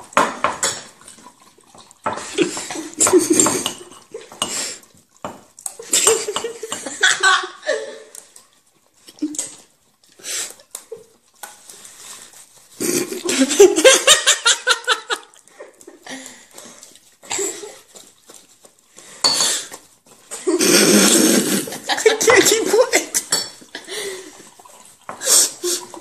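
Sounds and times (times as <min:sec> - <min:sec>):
spoon clinking on ceramic mug: 0:03.0 - 0:04.6, 0:19.2 - 0:19.6, 0:23.3 - 0:23.6
people laughing: 0:13.0 - 0:15.4.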